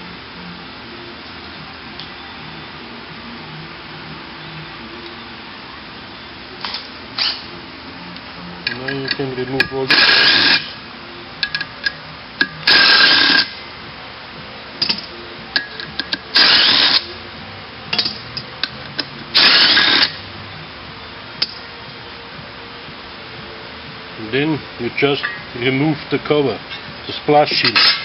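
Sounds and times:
power tool bursts: 9.8s - 10.8s, 12.6s - 13.6s, 16.3s - 17.1s, 19.3s - 20.2s.

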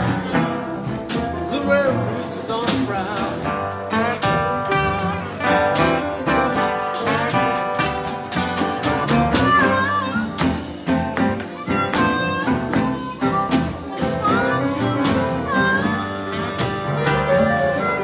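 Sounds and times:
acoustic guitars accompaniment: 0.0s - 18.0s
blues harmonica solo: 3.9s - 18.0s.

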